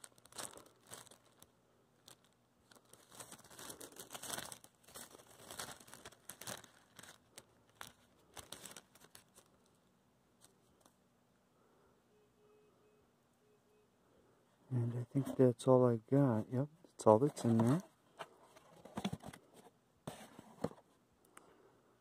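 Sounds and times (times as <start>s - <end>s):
wrapping crinkling and rustling: 0.0s - 11.0s, 17.1s - 20.3s.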